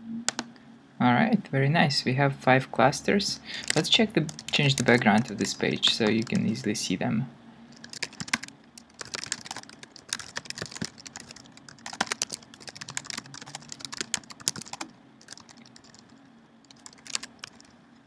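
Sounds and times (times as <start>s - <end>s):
typing on computer keyboard: 0.3s - 0.5s, 3.6s - 6.5s, 7.7s - 16.1s, 16.7s - 17.7s.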